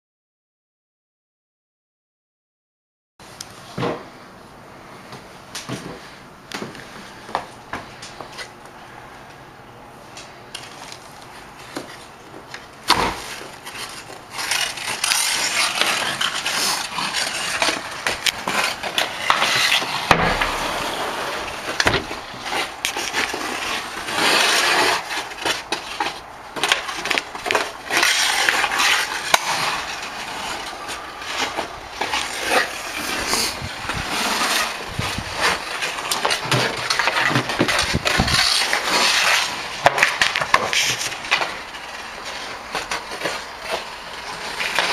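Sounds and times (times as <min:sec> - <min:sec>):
skate blades scraping ice: 0:12.8 - 0:44.9
hockey stick clacking on puck: 0:12.9 - 0:33.5
loud knock: 0:20.1 - 0:21.0.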